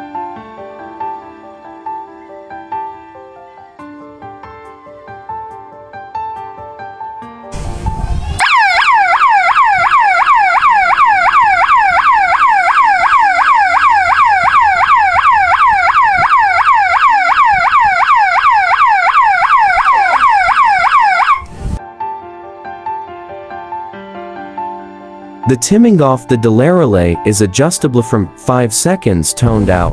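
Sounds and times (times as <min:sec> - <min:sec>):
alarm siren wailing: 0:08.4 - 0:21.5.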